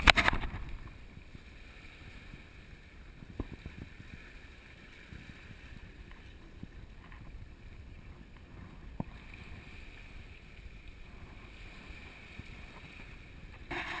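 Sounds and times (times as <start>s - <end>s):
wind noise on microphone: 0.0s - 14.0s.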